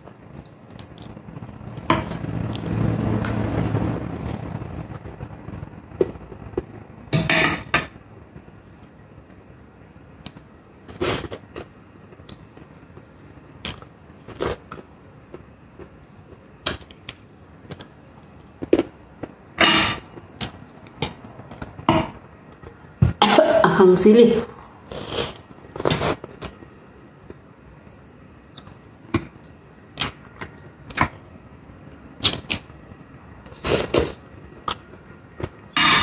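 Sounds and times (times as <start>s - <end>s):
chewing: 33.4s - 35.6s.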